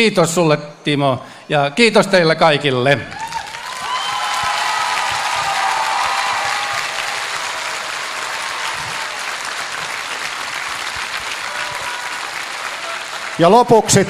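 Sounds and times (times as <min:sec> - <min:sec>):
crowd applauding: 0:03.1 - 0:14.0.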